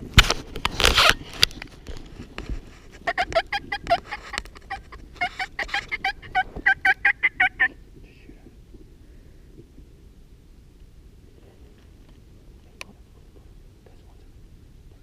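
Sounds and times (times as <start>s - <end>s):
turkeys yelping: 3.0s - 7.8s.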